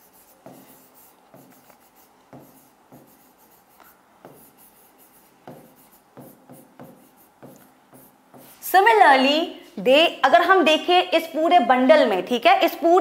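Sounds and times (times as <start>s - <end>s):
pen scratching on board: 0.0s - 8.6s.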